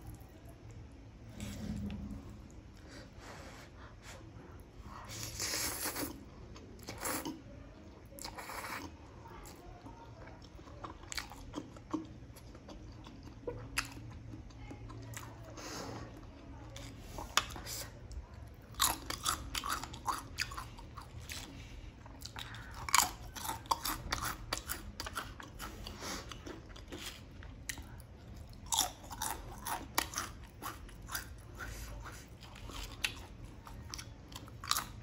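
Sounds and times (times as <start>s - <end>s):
person chewing: 10.4s - 15.3s, 18.7s - 35.0s.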